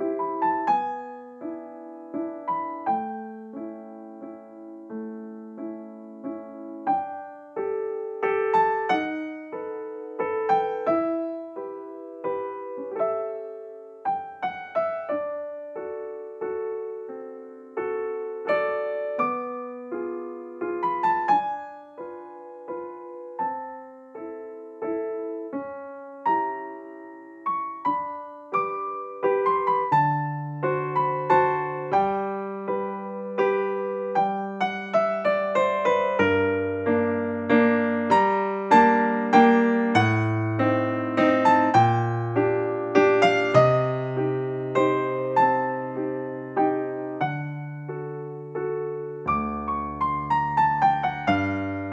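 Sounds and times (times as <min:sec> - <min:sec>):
gentle solo piano: 0:00.0 - 0:51.9.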